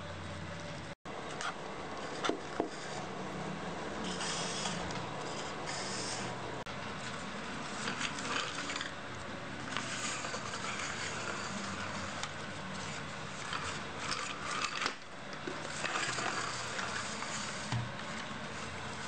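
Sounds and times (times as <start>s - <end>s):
toy truck scraping: 9.7s - 15.0s, 15.6s - 17.7s.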